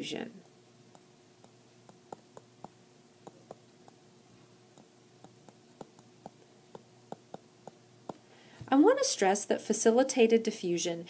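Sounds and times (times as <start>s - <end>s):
stylus tapping on pen tablet: 0.4s - 4.0s, 4.7s - 8.2s.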